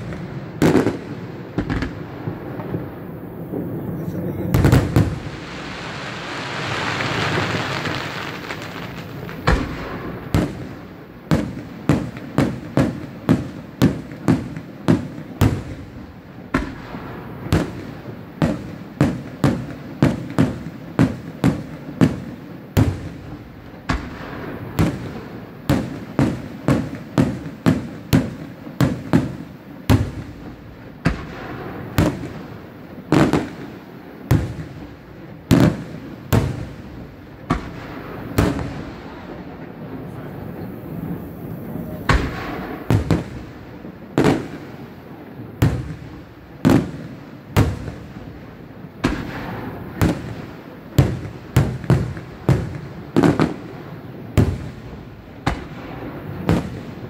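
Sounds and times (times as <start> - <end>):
firework shells bursting: 40.8 - 44.6.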